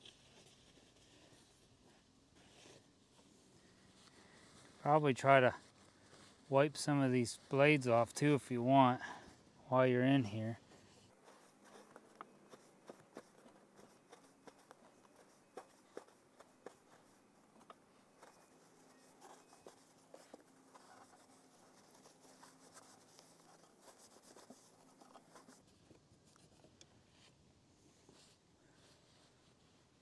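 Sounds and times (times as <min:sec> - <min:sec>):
paper towel rubbing: 0:10.3 - 0:25.7.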